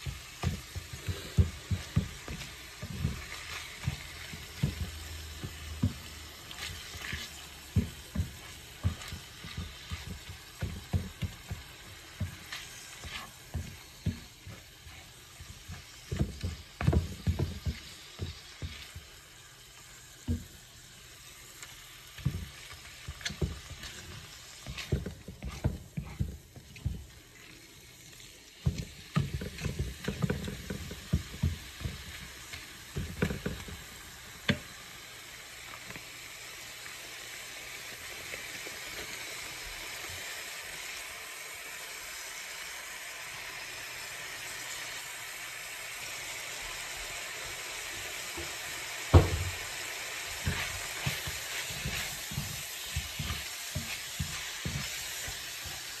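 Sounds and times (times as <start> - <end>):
wooden spatula scraping a pan: 0.0 - 20.8, 21.5 - 34.7, 47.8 - 56.0
meat sizzling in a skillet: 0.0 - 56.0.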